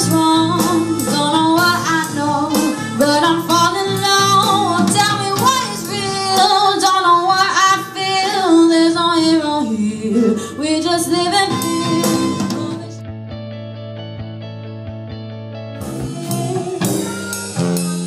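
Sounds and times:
guitar: 0:00.0 - 0:18.0
live band playing slow song: 0:00.0 - 0:18.0
person singing: 0:15.8 - 0:18.0.

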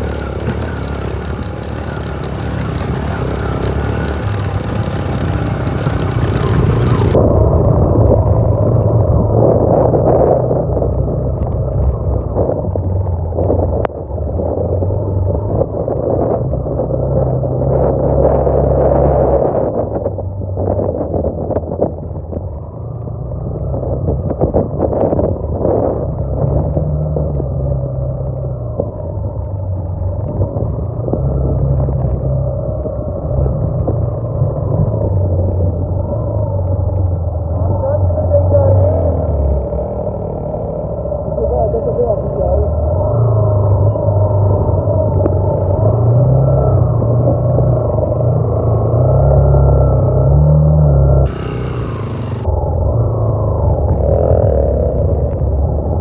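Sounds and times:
rattles from rocky track: 0:00.0 - 0:07.2
motorcycle engine running: 0:00.0 - 0:17.6, 0:43.5 - 0:56.0
wind noise: 0:00.0 - 0:56.0.

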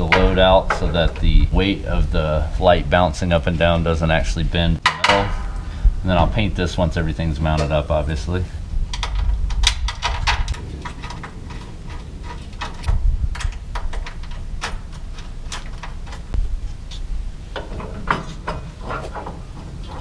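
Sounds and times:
steady low rumble: 0:00.0 - 0:18.2
bolts and washers clicking: 0:04.8 - 0:05.6, 0:08.9 - 0:20.0.

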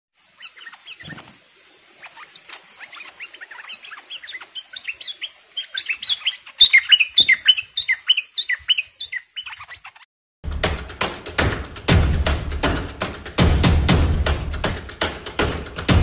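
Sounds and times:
bird chirping: 0:00.3 - 0:01.4, 0:02.0 - 0:10.1.

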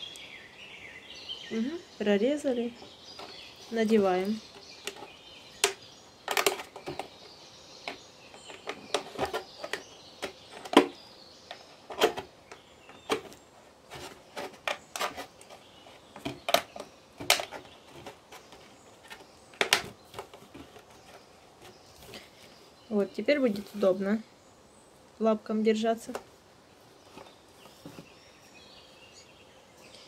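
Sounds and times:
plastic bottle clicking and crackling: 0:03.1 - 0:07.2, 0:16.2 - 0:21.8.

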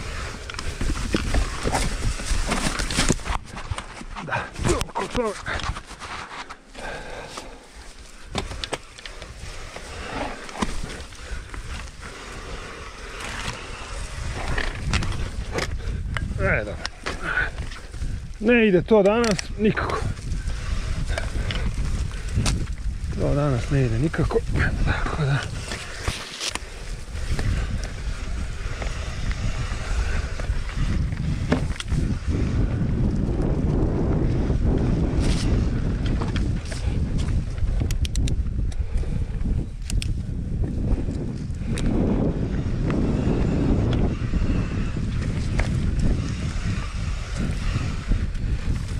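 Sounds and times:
bike tyres rolling on dirt: 0:00.0 - 0:48.9
wind buffeting microphone: 0:00.0 - 0:48.9
bike clicks and knocks: 0:08.1 - 0:18.2, 0:19.0 - 0:23.2, 0:24.5 - 0:33.8, 0:34.6 - 0:48.9.

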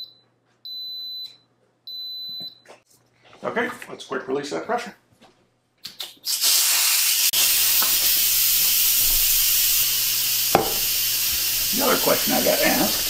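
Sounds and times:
steam hissing: 0:06.2 - 0:13.0
valve clicking: 0:06.3 - 0:11.9.

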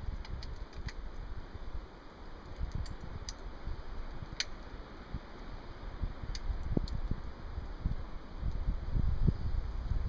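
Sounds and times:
small metallic clicks: 0:00.0 - 0:01.2, 0:02.4 - 0:04.7.

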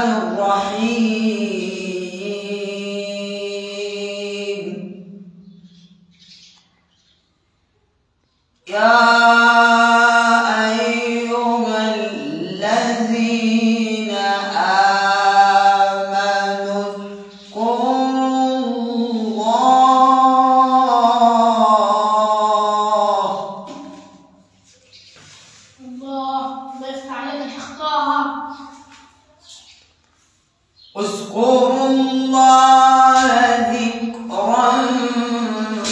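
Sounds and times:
man reciting melodically: 0:00.0 - 0:06.0, 0:08.6 - 0:24.6, 0:30.8 - 0:35.9.

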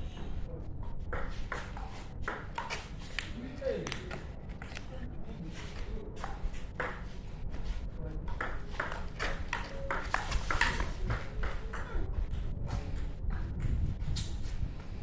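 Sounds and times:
ping pong ball clicking: 0:01.1 - 0:04.1.

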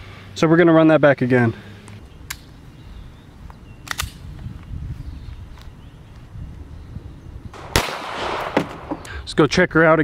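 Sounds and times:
wind rumbling on microphone: 0:02.6 - 0:09.7.

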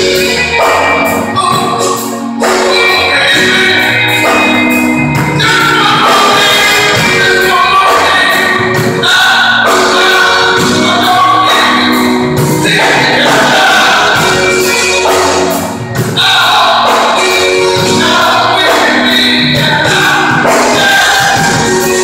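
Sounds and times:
live band playing: 0:00.0 - 0:22.0
people singing into microphones: 0:00.0 - 0:22.0.

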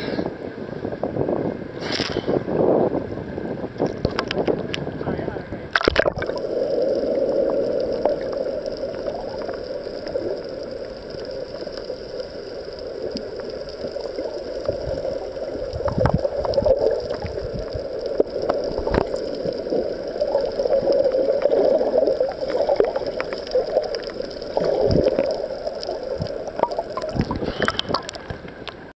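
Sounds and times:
underwater surf rush: 0:00.0 - 0:28.9.

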